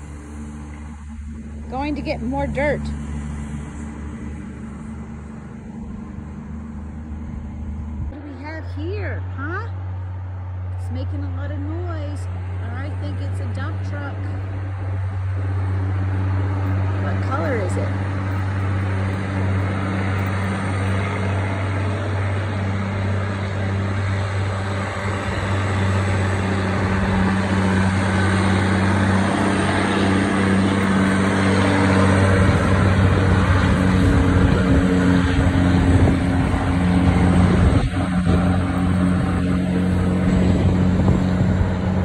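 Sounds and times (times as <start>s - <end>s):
diesel truck engine droning: 0.0s - 42.0s.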